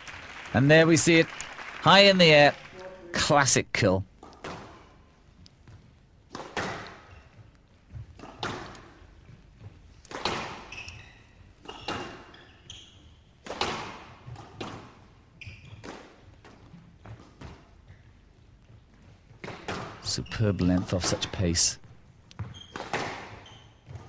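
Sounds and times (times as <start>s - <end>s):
racket hitting squash ball: 6.3s - 7.2s, 8.0s - 9.1s, 10.1s - 11.0s, 13.4s - 17.7s, 22.4s - 24.0s
shoe squeaks: 10.4s - 13.4s, 15.3s - 15.9s, 20.0s - 21.2s, 22.4s - 24.0s.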